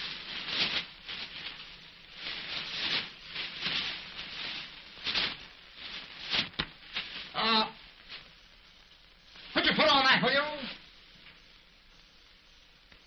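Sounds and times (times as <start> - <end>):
paper rustling underfoot: 0.0 - 8.4
film soundtrack hiss: 0.0 - 13.0.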